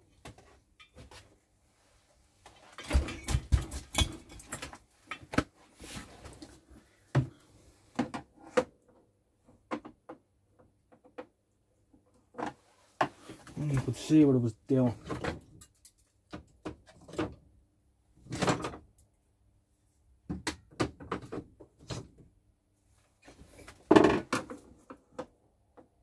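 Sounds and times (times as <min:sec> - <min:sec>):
plastic cabinet knocks and clunks: 0:02.8 - 0:04.3, 0:23.9 - 0:24.6.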